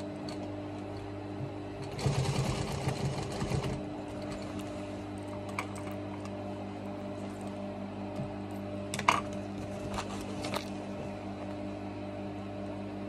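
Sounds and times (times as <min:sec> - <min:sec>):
sewing machine motor humming: 0:01.8 - 0:06.3
sewing machine rapid stitching: 0:01.9 - 0:03.8.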